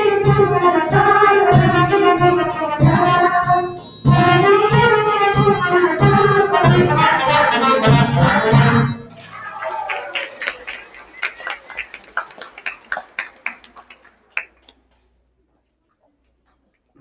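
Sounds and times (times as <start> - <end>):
loud music: 0.0 - 9.2.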